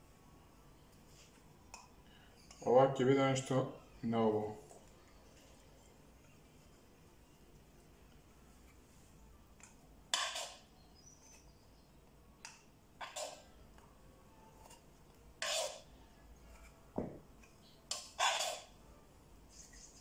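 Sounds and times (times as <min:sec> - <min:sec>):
fork scraping a frying pan: 0:10.1 - 0:10.7, 0:13.0 - 0:13.5, 0:15.4 - 0:15.9, 0:17.9 - 0:18.8.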